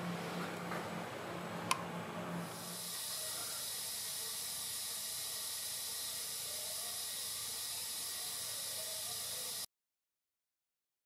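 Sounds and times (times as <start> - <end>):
high-pitched hiss: 2.4 - 9.7.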